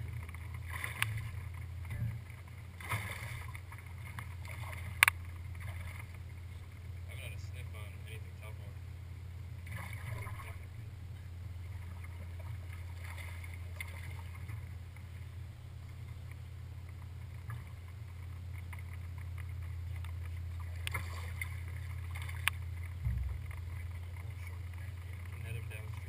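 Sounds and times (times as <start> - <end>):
boat low hum: 0.0 - 26.0
faint ticks: 4.9 - 6.9, 15.8 - 25.4
low knock: 23.0 - 23.7.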